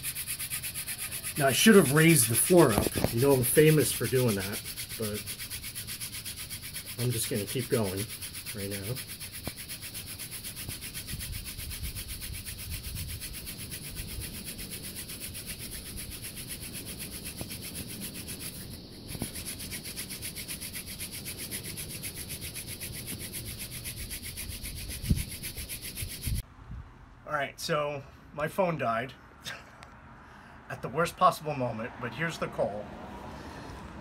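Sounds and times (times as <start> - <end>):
wooden spindle grinding on board: 0.0 - 26.4.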